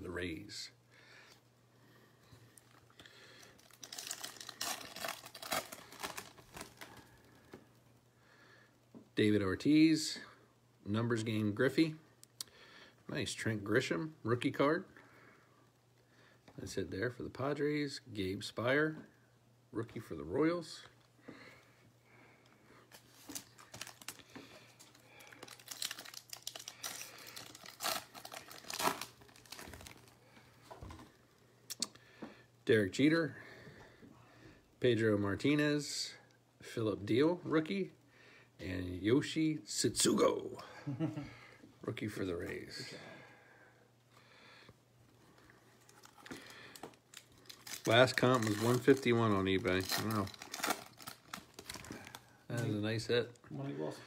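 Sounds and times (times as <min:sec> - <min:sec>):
foil wrapper tearing and crinkling: 0:03.4 - 0:07.1, 0:22.9 - 0:24.2, 0:24.8 - 0:30.2, 0:45.8 - 0:52.3.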